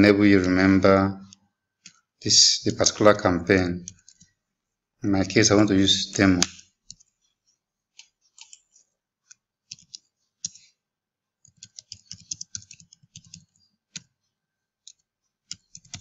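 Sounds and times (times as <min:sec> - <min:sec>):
keyboard keys clicking: 0:09.7 - 0:10.6, 0:11.4 - 0:14.1, 0:14.9 - 0:16.0.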